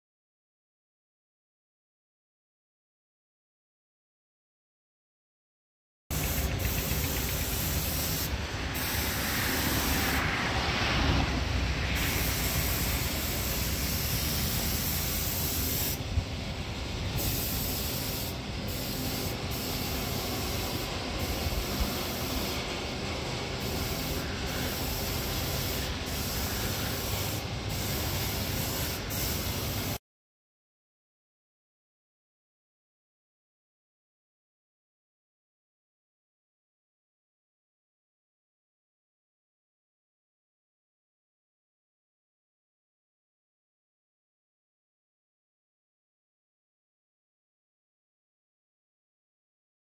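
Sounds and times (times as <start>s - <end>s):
spray gun hissing: 6.1s - 10.4s, 11.8s - 16.0s, 17.0s - 30.0s.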